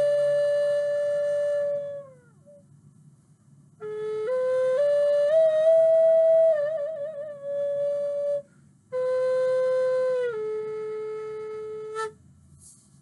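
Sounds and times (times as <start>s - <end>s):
wooden flute playing slow notes: 0.0s - 2.6s, 3.8s - 12.3s.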